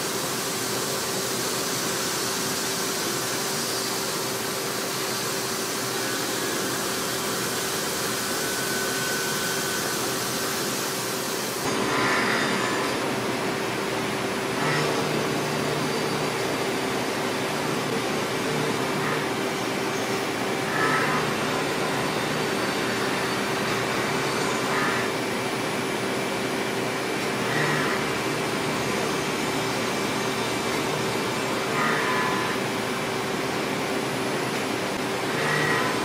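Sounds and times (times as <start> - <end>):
machine hum: 5.9 - 36.0
metal cutting squeals: 6.0 - 10.6, 17.6 - 25.2, 31.7 - 32.8, 35.3 - 36.0.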